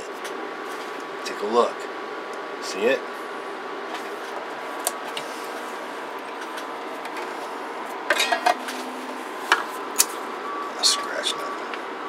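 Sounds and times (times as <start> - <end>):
electronics hum and hiss: 0.0 - 12.0
faint steady tones: 5.8 - 12.0.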